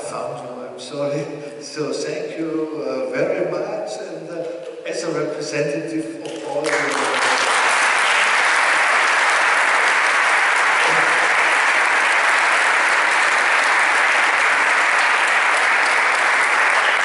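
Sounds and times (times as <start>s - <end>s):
audience applause: 6.6s - 17.0s.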